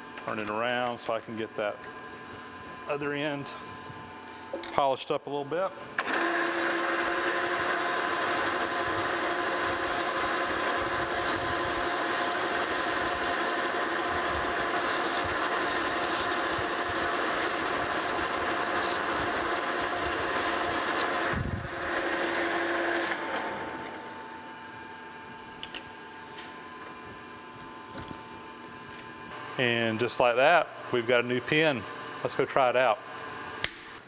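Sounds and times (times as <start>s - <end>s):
metal lathe whining: 6.0s - 24.0s.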